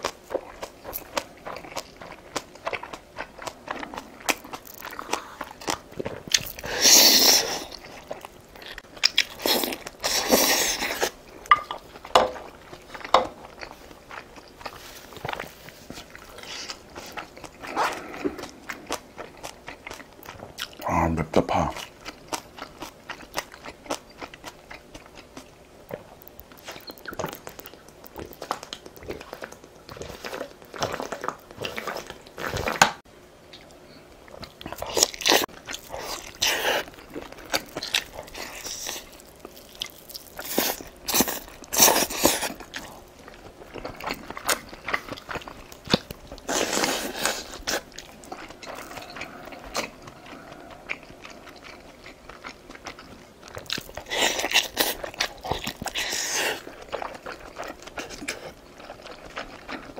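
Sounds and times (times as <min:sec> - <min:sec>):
crunchy chewing: 0:00.0 - 0:20.9, 0:21.5 - 0:59.9
gulping water: 0:47.5 - 0:55.9.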